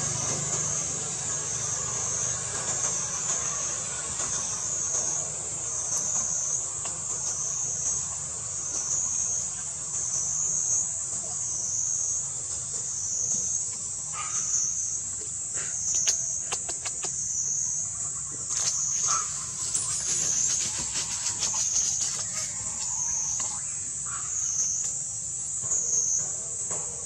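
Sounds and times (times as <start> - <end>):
insects buzzing in chorus: 0.0 - 27.0
sharp clicks: 15.9 - 17.2.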